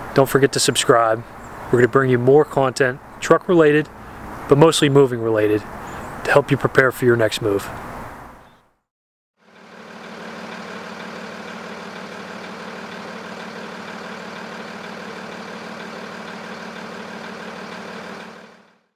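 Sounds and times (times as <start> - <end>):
truck engine idling: 9.4 - 18.9.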